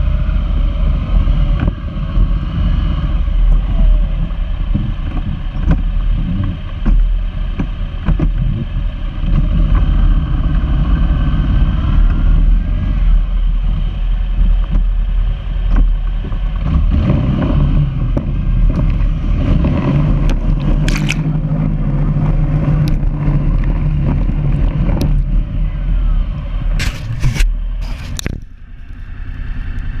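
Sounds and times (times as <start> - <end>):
off-road vehicle engine: 0.0 - 30.0
sharp knocks and scrapes: 4.2 - 9.9, 18.1 - 21.4, 26.8 - 28.4.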